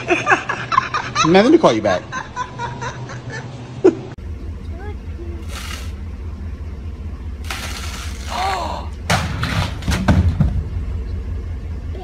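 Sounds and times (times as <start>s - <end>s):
low rumble: 4.2s - 12.0s
thuds and crashes: 9.1s - 10.8s.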